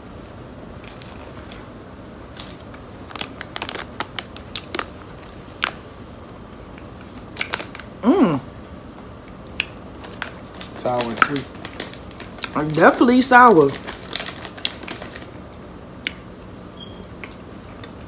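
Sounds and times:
plastic candy bag crinkling: 0.7 - 5.8, 6.9 - 8.0, 9.9 - 15.6.

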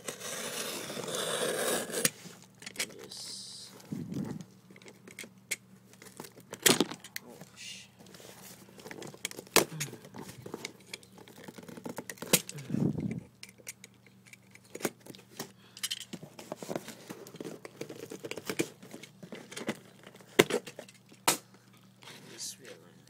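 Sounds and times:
packing tape tearing: 0.0 - 2.2.

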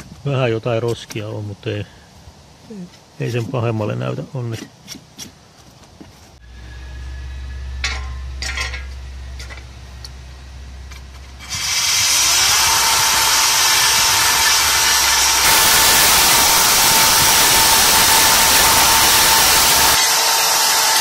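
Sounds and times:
wire brush scraping rust: 4.5 - 20.2
drill motor whine: 11.4 - 21.0.

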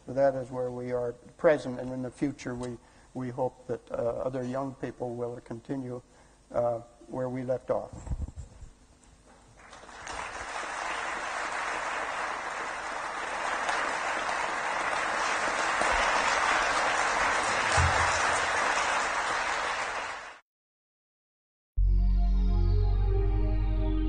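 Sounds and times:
large audience applauding: 9.6 - 20.4.

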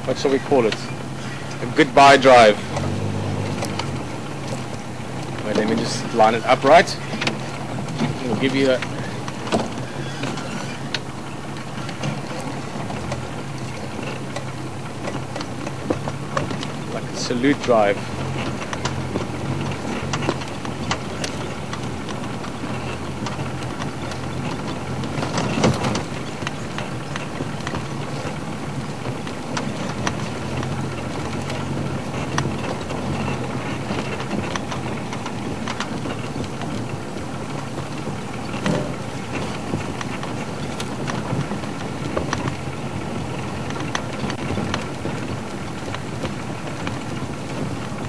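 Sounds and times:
knocks and clicks from bumpy ride: 0.0 - 48.0
vehicle engine running: 0.0 - 48.0.

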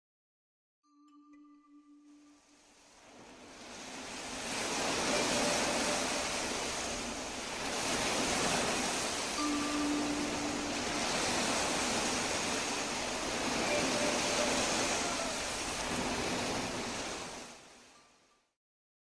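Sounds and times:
ocean surf: 2.1 - 18.0
soft ringing tone: 4.7 - 7.4, 8.0 - 15.7.

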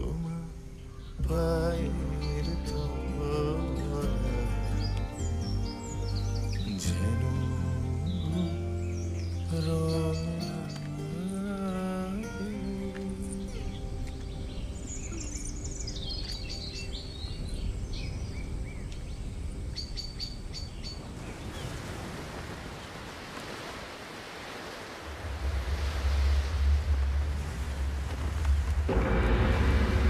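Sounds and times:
wind: 0.0 - 30.0
birds chirping: 0.6 - 22.0
sea surf: 21.0 - 30.0
strong low rumble: 25.1 - 30.0.

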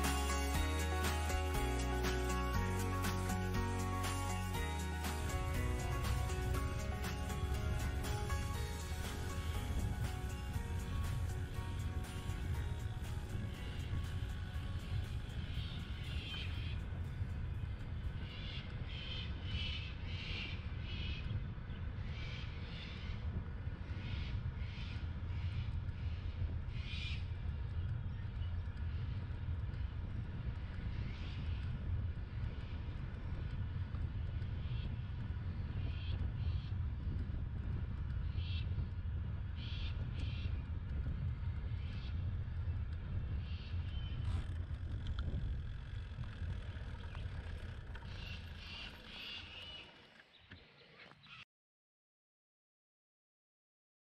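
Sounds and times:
wind and tyre rumble: 0.0 - 51.3
bird calls: 46.6 - 51.4.

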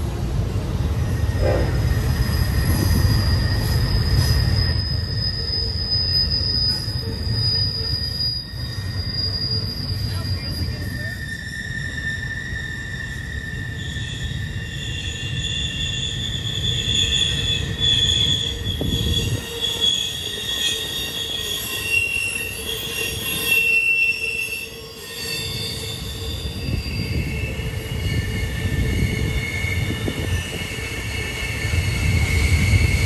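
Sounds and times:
low rumble of wheels on track: 0.0 - 23.5
train wheels squealing on rails: 0.0 - 33.0.

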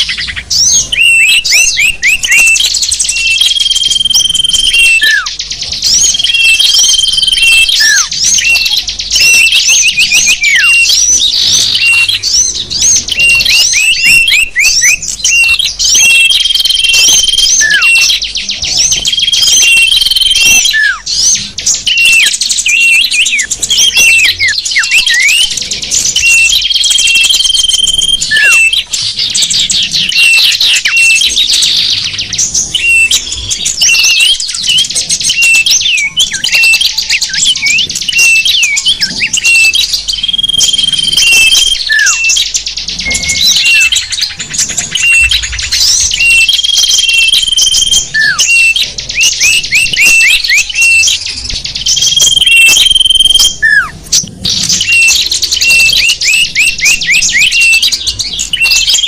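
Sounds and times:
down-slurred bird calls: 0.0 - 59.0
songbirds chirping and trilling: 0.0 - 59.0
whistled bird note: 0.0 - 59.0.

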